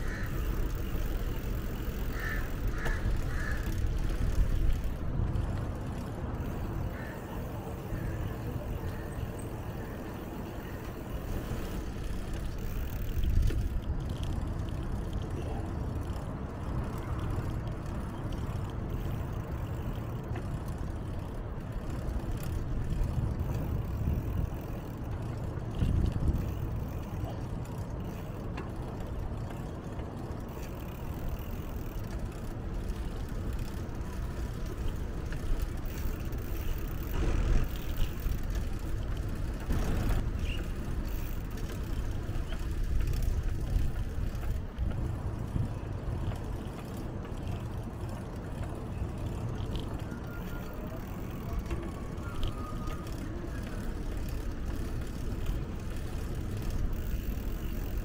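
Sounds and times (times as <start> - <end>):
passing road traffic: 0.0 - 58.0
wind rumble on microphone: 20.0 - 34.4.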